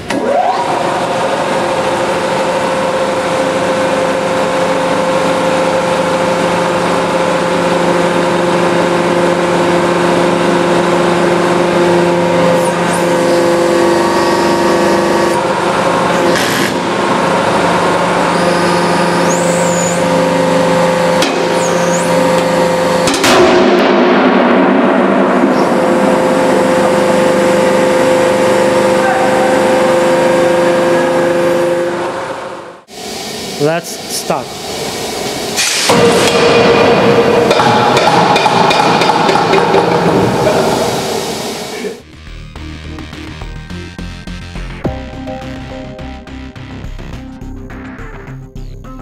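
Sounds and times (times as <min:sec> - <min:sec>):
hydraulic press humming: 0:00.0 - 0:42.0
high squeals: 0:18.2 - 0:22.9, 0:25.5 - 0:32.1.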